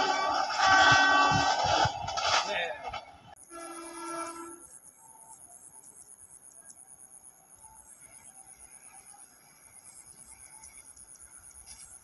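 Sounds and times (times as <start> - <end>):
faint insect chirping: 3.4 - 12.0.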